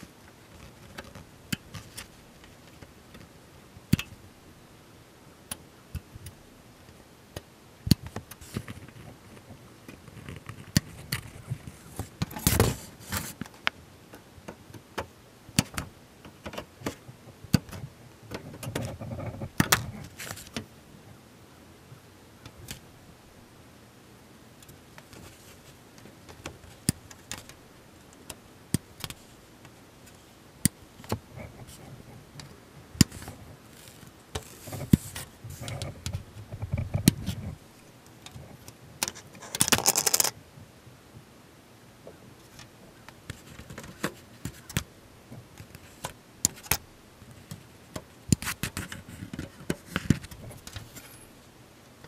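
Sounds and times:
plastic parts clicking and tapping: 38.2 - 40.3.

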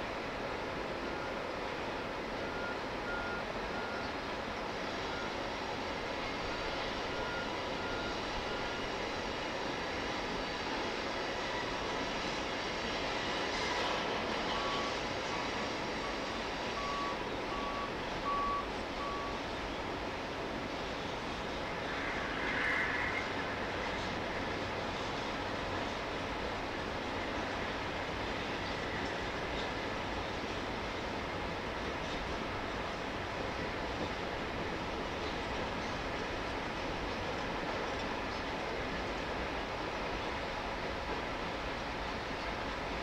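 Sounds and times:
train wheels rumbling on rail: 0.0 - 43.0
backup alarm beeping: 16.8 - 19.4.

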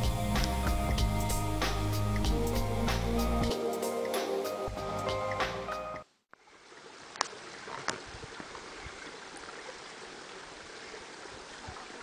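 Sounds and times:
stream flowing: 6.3 - 12.0.

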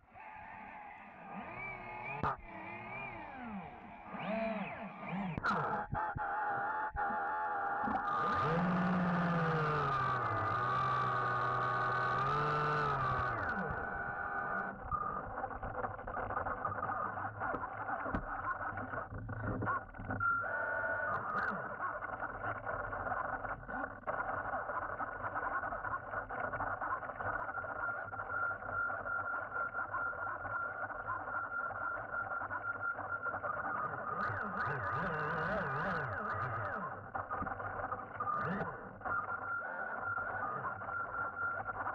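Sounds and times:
electric motor whining: 1.3 - 14.8.

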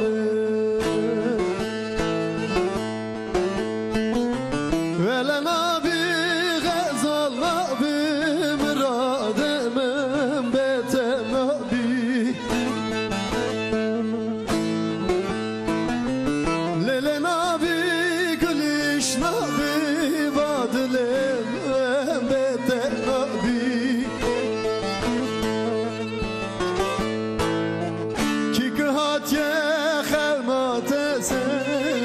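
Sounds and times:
man singing with vibrato: 0.0 - 3.0, 4.8 - 15.1, 16.4 - 26.4, 27.9 - 32.0
plucked long-necked lute: 0.0 - 32.0.

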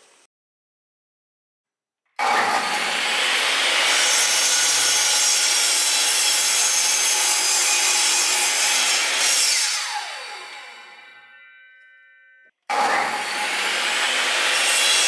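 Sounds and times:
mitre saw cutting wood: 2.2 - 11.2, 12.7 - 15.0
saw motor winding down: 8.9 - 11.2.

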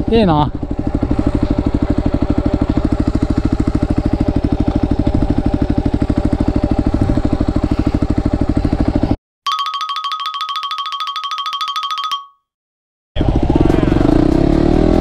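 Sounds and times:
motorcycle engine idling: 0.0 - 9.2, 13.2 - 15.0.

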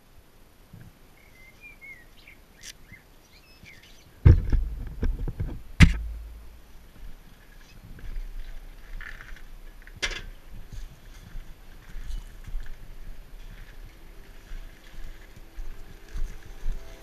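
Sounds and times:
faint bird chirps: 1.1 - 4.5
loud thumps on microphone: 4.2 - 6.5.

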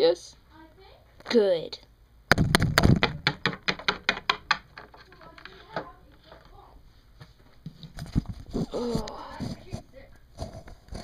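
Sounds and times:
hands knocking on camera: 2.3 - 4.6.

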